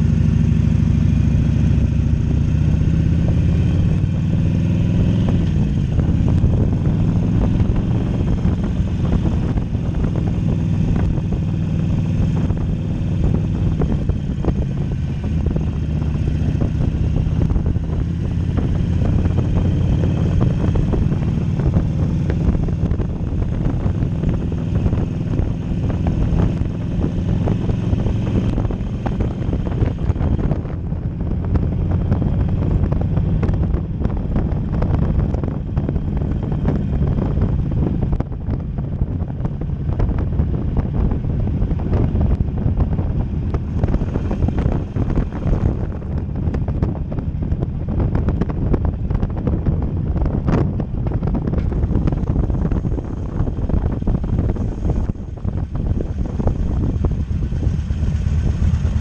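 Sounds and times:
motorcycle engine running: 0:00.0 - 0:59.0
wind on microphone: 0:00.0 - 0:59.0.

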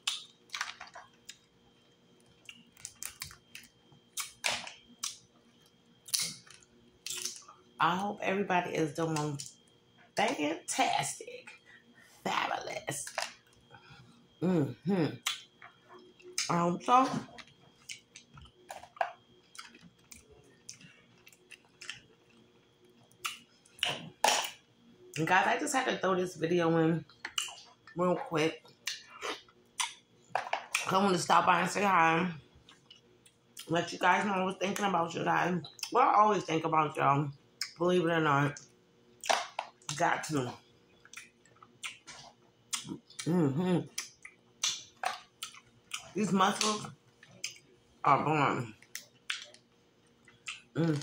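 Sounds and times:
chewing and mouth noises: 0:15.2 - 0:25.2, 0:27.1 - 0:28.0, 0:41.0 - 0:47.8, 0:48.7 - 0:51.0.

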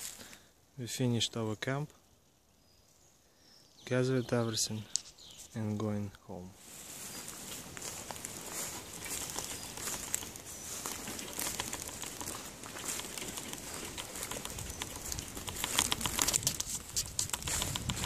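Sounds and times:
wild birds calling: 0:02.0 - 0:06.0, 0:06.8 - 0:18.0
light rustling: 0:06.7 - 0:18.0
dove cooing: 0:07.9 - 0:16.6.

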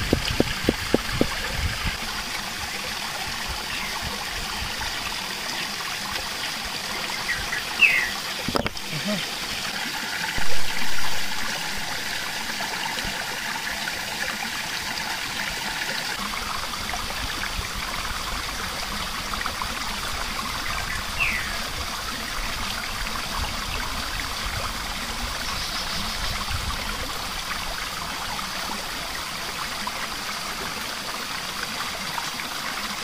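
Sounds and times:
river flowing over rocks: 0:00.0 - 0:25.6.

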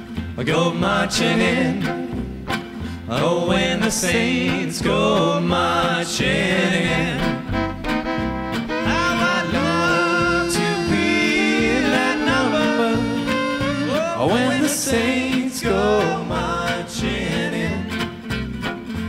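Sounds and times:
acoustic guitars: 0:00.0 - 0:19.0
upright bass: 0:00.0 - 0:19.0
violin: 0:06.6 - 0:19.0.

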